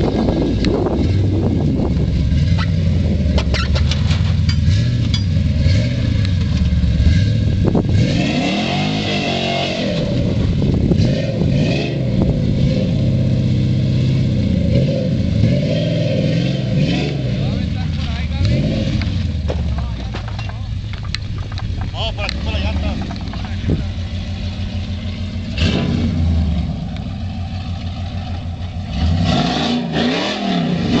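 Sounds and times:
truck engine revving: 0:00.0 - 0:31.0.

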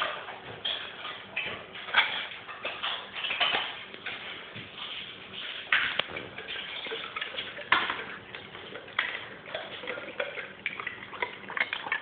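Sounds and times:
dog clicking on tile floor: 0:00.0 - 0:08.1.

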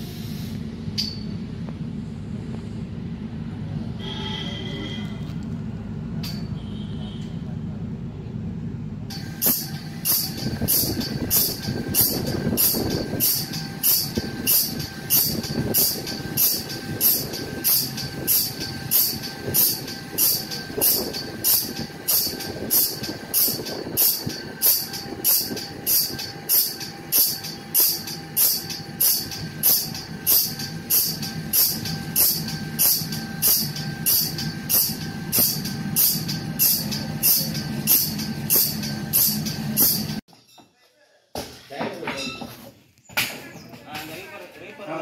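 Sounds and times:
brief high whine: 0:03.9 - 0:05.4
sawmill machinery drone: 0:07.7 - 0:40.2
high-pitched grinding strokes: 0:09.1 - 0:40.2
sharp high click: 0:09.1 - 0:40.2.

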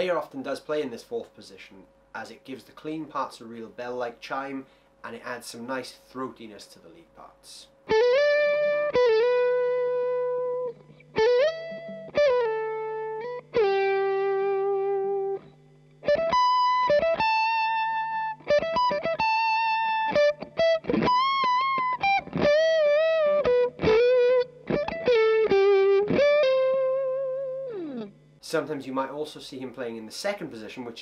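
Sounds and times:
faint amp hum: 0:00.0 - 0:31.0
clean electric guitar lead: 0:07.9 - 0:28.2.

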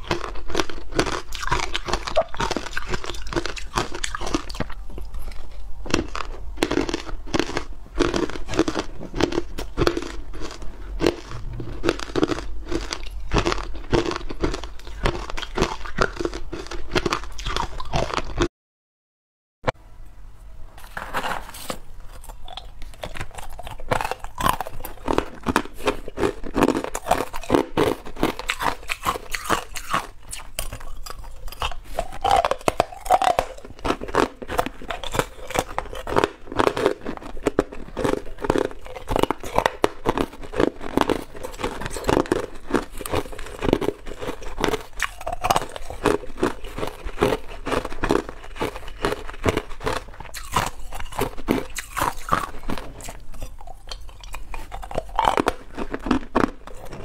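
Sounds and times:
ice cubes being crunched: 0:20.9 - 0:57.0.

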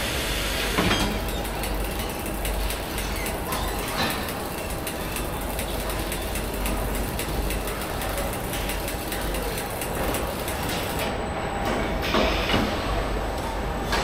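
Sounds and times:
assembly-line machinery running: 0:00.0 - 0:11.1.

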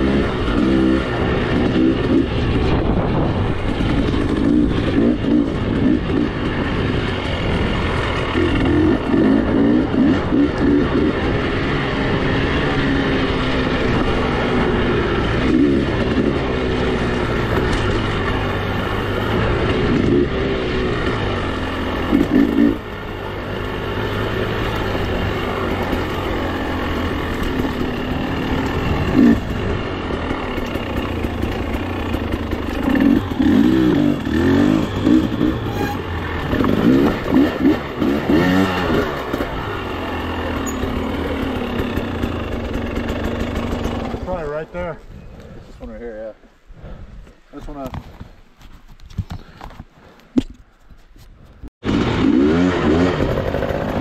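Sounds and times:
motorcycle engine revving: 0:00.0 - 0:45.0, 0:51.8 - 0:54.0.

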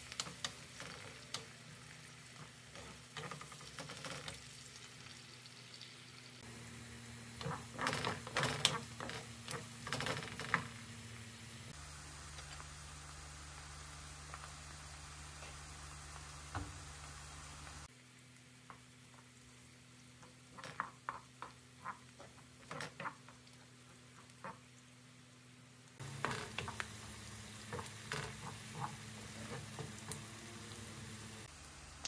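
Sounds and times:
faint sizzle: 0:00.0 - 0:32.0
wooden spoon scraping a pan: 0:02.3 - 0:04.5, 0:20.2 - 0:23.4, 0:27.7 - 0:30.5.

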